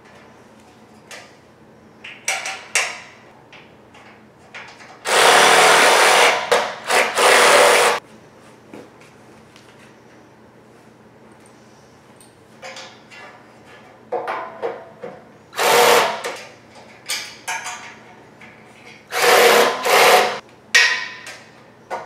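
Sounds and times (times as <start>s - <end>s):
cordless drill driving a bolt: 5.1s - 8.0s, 15.6s - 16.2s, 19.1s - 20.4s.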